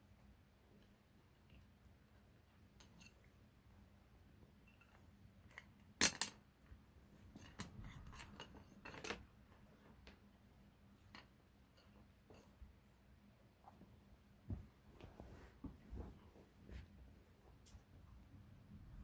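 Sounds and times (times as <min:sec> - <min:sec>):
light taps and scrapes of toy: 0:07.2 - 0:10.2.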